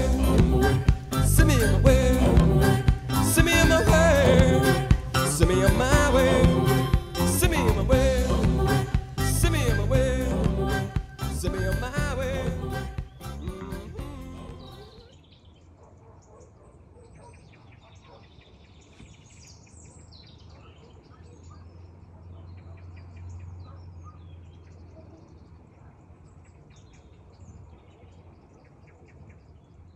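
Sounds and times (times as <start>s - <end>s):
small birds chirping: 12.3s - 29.9s.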